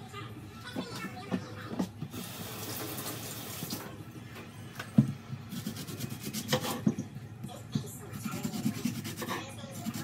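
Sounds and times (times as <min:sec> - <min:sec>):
knife cutting on wooden board: 0:05.5 - 0:07.0, 0:08.3 - 0:10.0.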